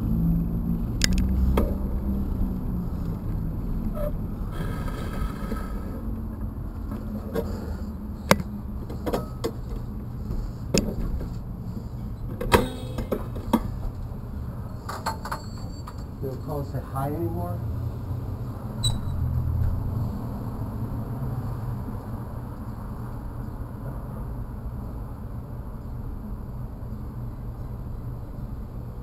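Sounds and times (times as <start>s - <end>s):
street traffic rumble: 0.0s - 29.0s
sharp clicks and knocks: 1.0s - 1.8s, 8.3s - 9.8s, 10.7s - 11.4s.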